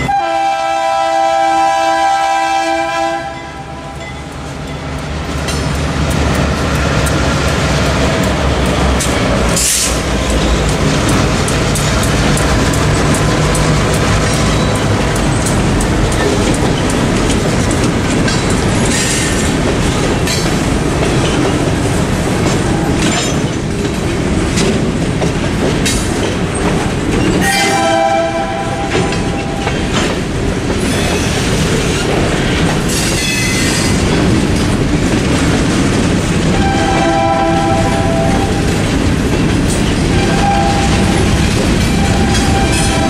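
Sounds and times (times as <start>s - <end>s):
freight cars rumbling on rails: 0.0s - 43.0s
clicks and clatter over rail joints: 5.4s - 27.4s.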